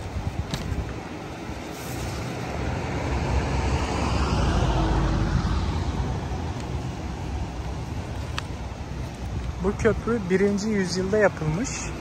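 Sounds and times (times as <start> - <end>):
vehicle passing: 1.6 - 12.0.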